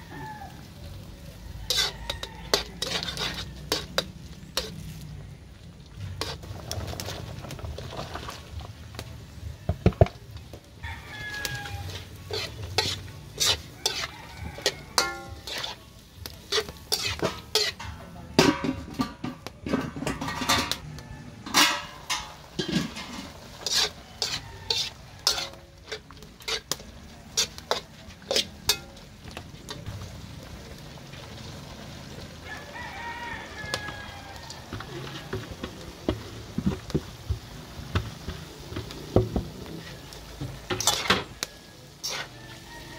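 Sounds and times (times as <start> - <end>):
rooster crowing: 0.0 - 3.9, 10.8 - 12.2, 13.4 - 15.6, 20.3 - 22.0, 23.1 - 25.6, 32.4 - 35.6, 41.2 - 42.9
vegetables sizzling: 0.0 - 42.9
metal spatula scraping a wok: 1.5 - 5.2, 6.0 - 7.9, 10.8 - 30.0, 32.8 - 42.9.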